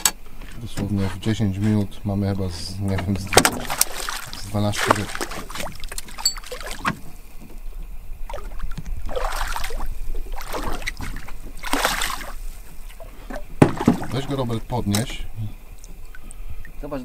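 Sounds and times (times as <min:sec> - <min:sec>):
steady low hum: 0:00.0 - 0:17.0
rushing water: 0:01.7 - 0:07.4, 0:08.1 - 0:17.0
sharp knocks: 0:13.6 - 0:14.2.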